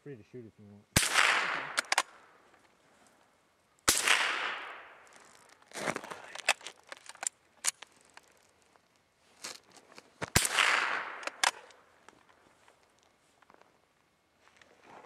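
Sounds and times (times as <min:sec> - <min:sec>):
gunshot with echo: 0:01.0 - 0:01.9, 0:03.9 - 0:04.9, 0:10.4 - 0:11.4.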